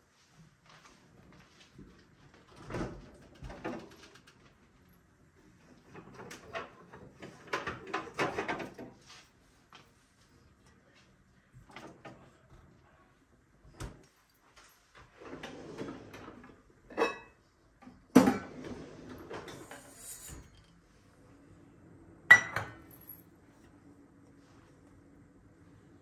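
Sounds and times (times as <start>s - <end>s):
dishes and utensils clattering: 6.0s - 8.9s, 15.4s - 17.4s, 18.2s - 20.7s, 22.3s - 23.2s.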